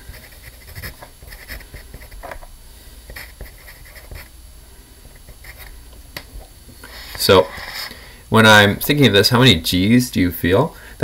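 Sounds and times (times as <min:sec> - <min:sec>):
pencil scratching on paper: 0:00.0 - 0:02.4, 0:03.1 - 0:04.3, 0:05.3 - 0:05.7.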